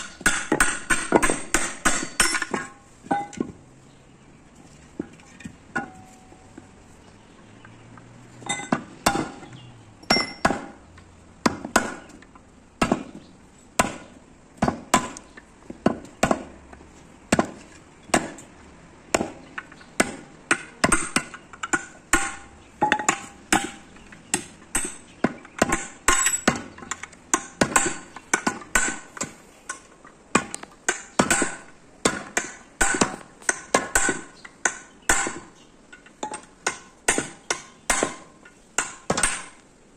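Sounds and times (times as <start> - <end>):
hammer striking chisel on steel: 0.0 - 3.4, 8.5 - 10.8, 20.0 - 35.5, 36.2 - 39.6.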